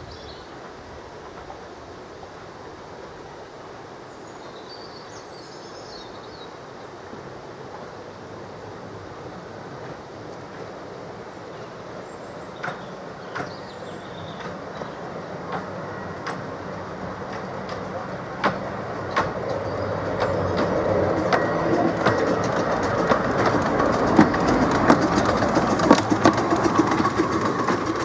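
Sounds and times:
steam train approaching: 0:00.0 - 0:28.0
wheels clicking over rail joints: 0:07.1 - 0:28.0.

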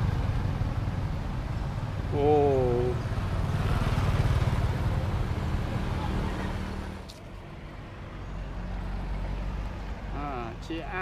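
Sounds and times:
motorbike engine passing: 0:01.8 - 0:07.0.

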